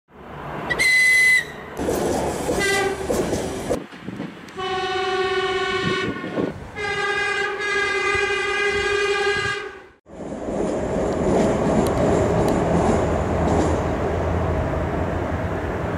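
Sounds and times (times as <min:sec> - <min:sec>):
train rushing past: 0:00.2 - 0:15.9
short high whistle: 0:00.7 - 0:01.7
train horn blasts: 0:02.6 - 0:03.1, 0:04.6 - 0:10.0.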